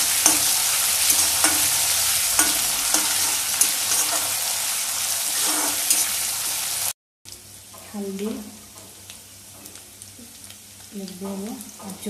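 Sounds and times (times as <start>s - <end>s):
steel spatula scraping pan: 0.0s - 6.5s
spices sizzling in hot oil: 0.0s - 12.0s.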